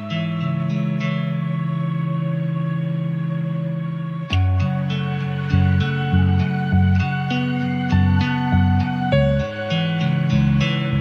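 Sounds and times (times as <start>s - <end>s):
low bass line: 0.0s - 11.0s
plucked notes: 4.3s - 11.0s.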